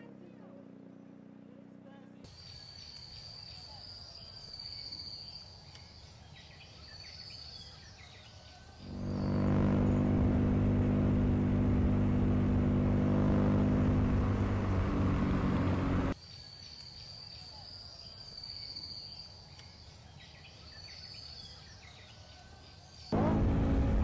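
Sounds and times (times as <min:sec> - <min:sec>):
vehicle engine hum: 0:00.0 - 0:02.3, 0:08.8 - 0:16.2, 0:23.1 - 0:24.0
high-pitched insect buzz: 0:08.8 - 0:14.1.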